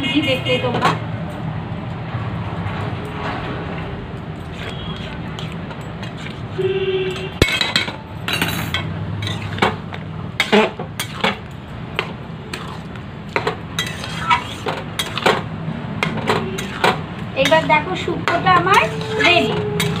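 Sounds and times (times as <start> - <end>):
metal spatula scraping a pan: 4.4 - 7.9, 8.5 - 9.8, 10.4 - 11.4, 12.5 - 15.4, 16.0 - 20.0.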